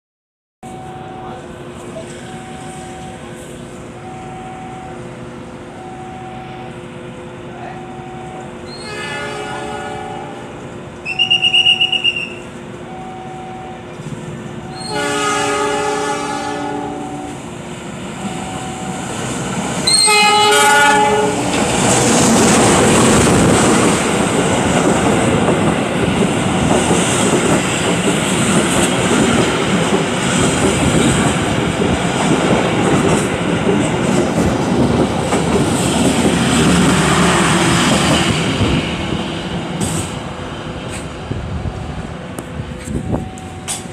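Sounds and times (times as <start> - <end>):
train rumbling past: 0.6 - 43.9
two-note beeping: 4.0 - 5.0
train horn blasts: 8.7 - 12.4, 14.7 - 17.4, 19.8 - 21.4
shrill high whistle: 11.0 - 12.5.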